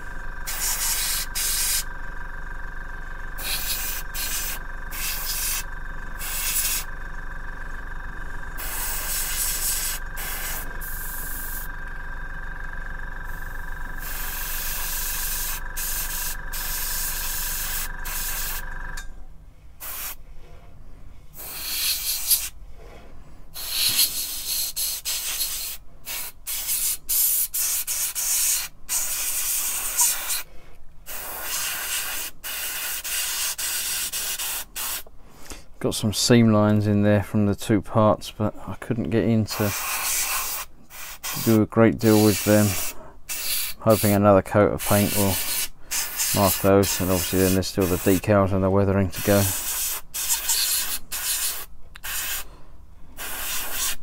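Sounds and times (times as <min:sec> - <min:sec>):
airbrush hissing: 0:00.0 - 0:01.9, 0:03.4 - 0:06.9, 0:08.5 - 0:11.7, 0:13.2 - 0:18.7, 0:19.8 - 0:20.2, 0:21.4 - 0:22.6, 0:23.6 - 0:30.5, 0:31.1 - 0:35.1, 0:39.5 - 0:44.2, 0:44.8 - 0:48.3, 0:49.2 - 0:52.5, 0:53.2 - 0:54.0
steady hum: 0:00.0 - 0:54.0.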